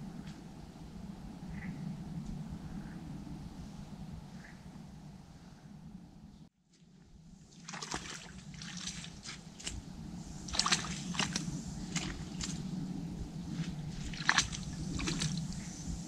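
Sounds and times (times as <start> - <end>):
water splashing and sloshing: 6.7 - 16.0.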